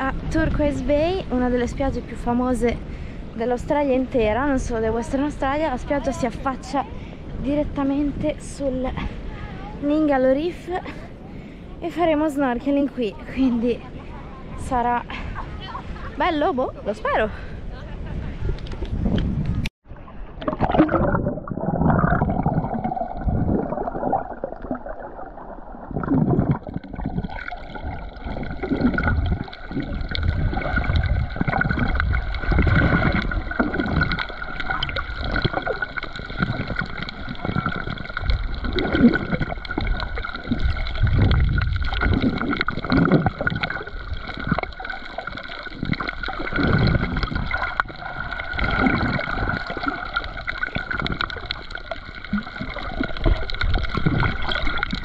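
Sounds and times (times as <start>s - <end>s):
muffled underwater gurgling: 20.3s - 55.0s.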